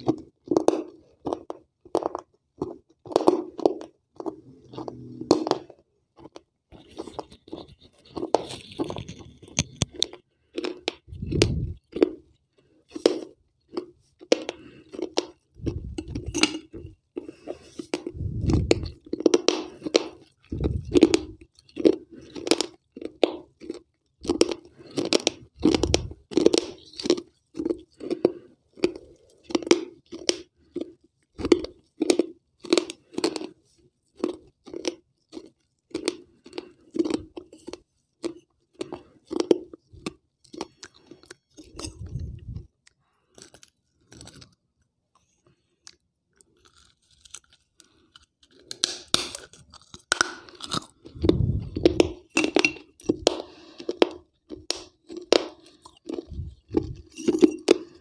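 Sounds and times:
crunching and chewing clay: 0.0s - 58.0s.

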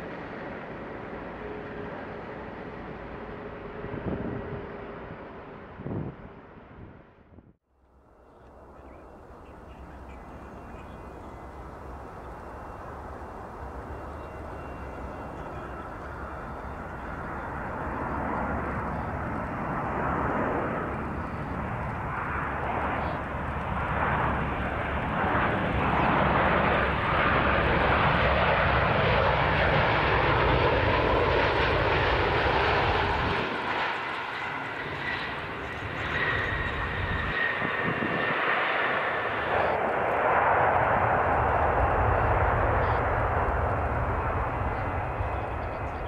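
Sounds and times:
thin steady whine: 8.2s - 19.8s
jet engines roaring: 8.5s - 46.0s.

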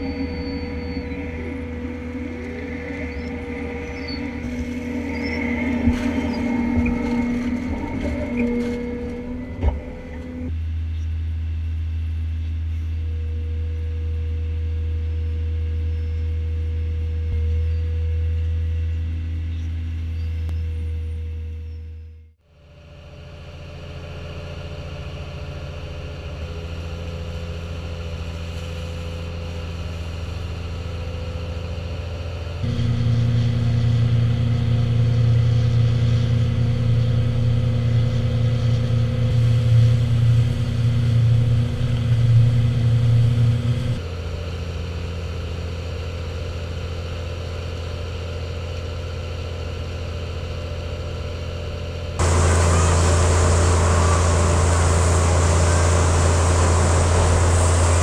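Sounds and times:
dredger engine running: 0.0s - 10.6s, 23.5s - 50.6s, 51.2s - 58.0s
loud rushing sound: 52.2s - 58.0s.

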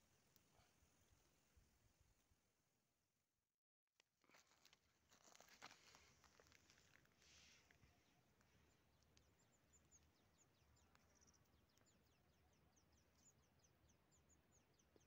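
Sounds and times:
birds chirping: 7.8s - 15.0s.

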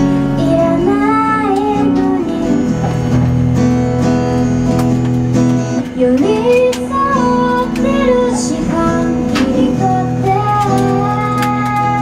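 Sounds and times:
strummed acoustic guitar: 0.0s - 12.0s
woman singing: 0.2s - 2.8s, 6.0s - 12.0s.

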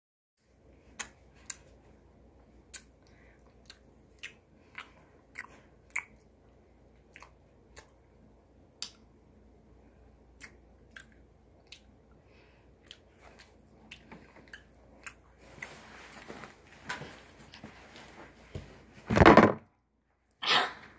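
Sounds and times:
person chewing rice: 2.7s - 6.3s, 12.8s - 15.7s.

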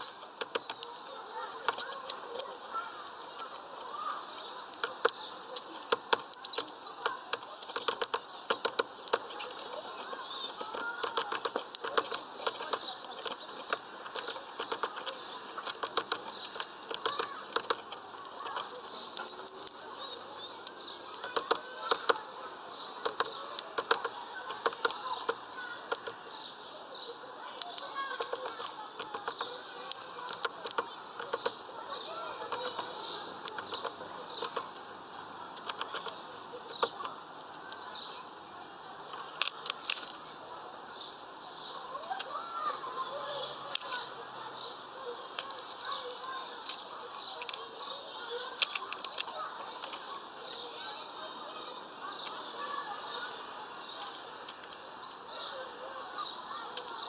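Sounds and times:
finch pecking seeds: 0.0s - 57.0s
small birds chirping: 0.0s - 57.0s.

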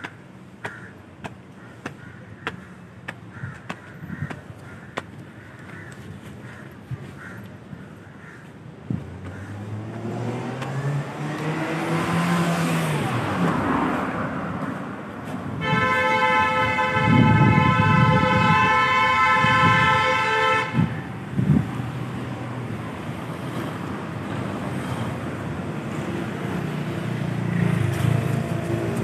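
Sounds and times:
traffic rumble: 0.0s - 29.0s
vehicle engine passing: 9.1s - 14.6s
vehicle horn blast: 15.5s - 21.1s.

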